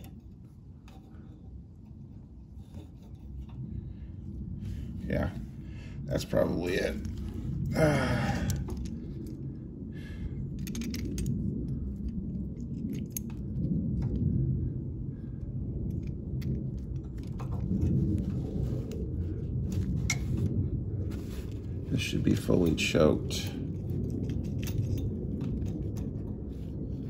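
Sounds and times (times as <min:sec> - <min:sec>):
small metal clicks and rattles: 0:00.0 - 0:03.6, 0:10.5 - 0:14.3, 0:15.8 - 0:19.0, 0:22.3 - 0:27.0.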